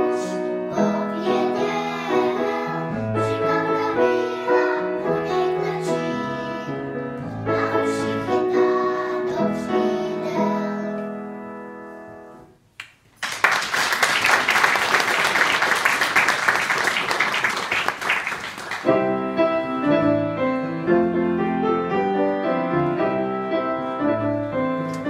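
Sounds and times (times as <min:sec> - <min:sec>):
girls singing: 0:00.0 - 0:11.2
piano accompaniment: 0:00.0 - 0:12.6, 0:17.6 - 0:25.0
audience applause: 0:13.2 - 0:18.9.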